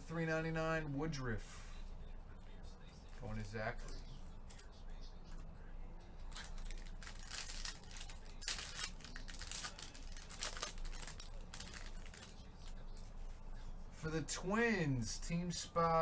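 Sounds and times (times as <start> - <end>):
foil wrapper crinkling and tearing: 6.3 - 12.8.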